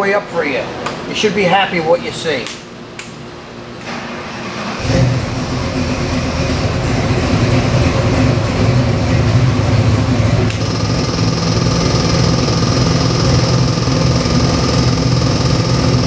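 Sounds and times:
engine idling: 4.8s - 16.0s
high steady whine: 4.8s - 16.0s.

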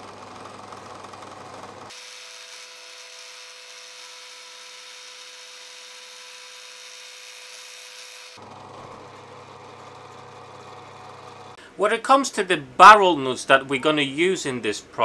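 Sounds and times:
drill bit boring into resin: 0.0s - 11.6s
drill motor humming: 0.0s - 11.6s.

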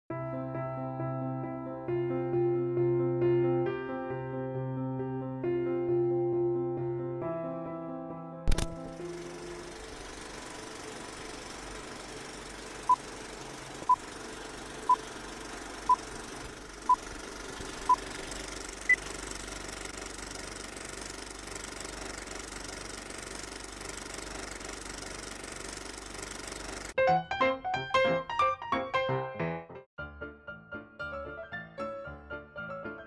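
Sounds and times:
film projector clatter: 8.5s - 27.0s.

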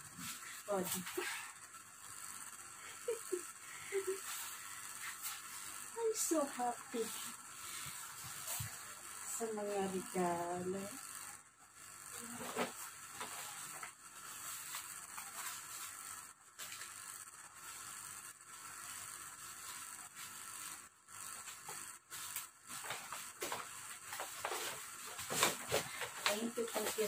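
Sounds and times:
paper bag rustling and crinkling: 22.7s - 27.0s.

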